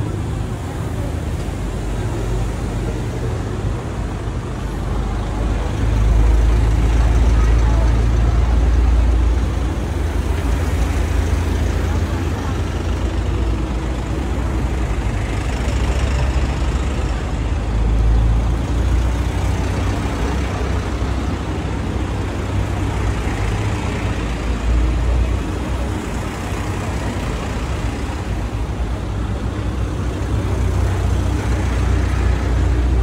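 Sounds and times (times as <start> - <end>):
minibus engine rumble: 0.0 - 33.0
road noise: 0.0 - 33.0.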